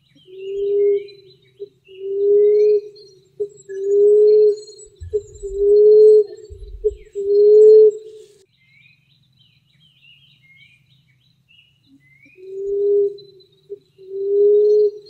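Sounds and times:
small birds chirping: 0.0 - 15.0
dove cooing: 2.0 - 8.0, 14.0 - 15.0.

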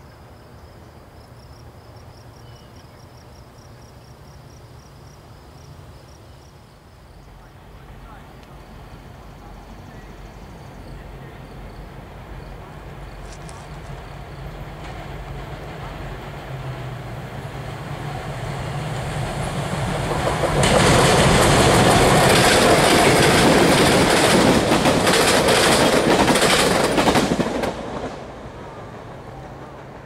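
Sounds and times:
diesel locomotive engine drone: 6.6 - 30.0
train wheels clicking over rail joints: 13.1 - 17.2, 18.2 - 30.0.

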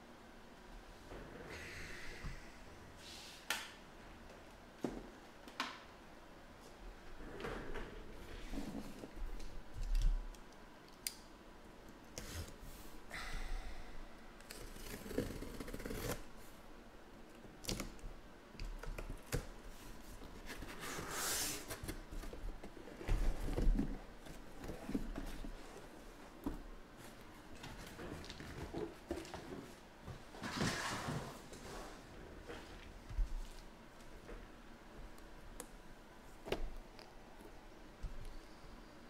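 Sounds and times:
packing tape cut and pulled: 14.4 - 16.2.

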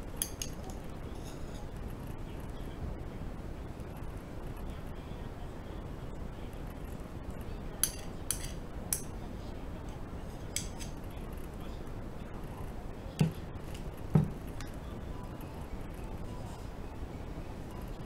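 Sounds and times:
fork clinking and scraping dish: 0.2 - 1.7, 7.8 - 9.1, 10.4 - 11.0
dish knocking on table: 14.1 - 14.4.

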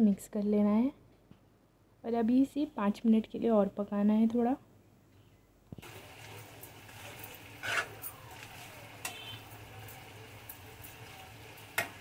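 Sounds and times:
thick mixture sizzling: 5.8 - 12.0
steel spoon scraping a pan: 6.6 - 11.9.

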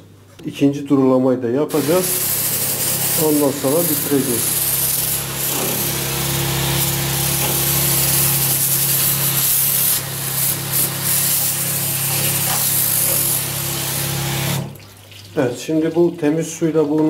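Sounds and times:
water spray hissing: 1.7 - 14.8
electric pump humming: 1.7 - 15.0.

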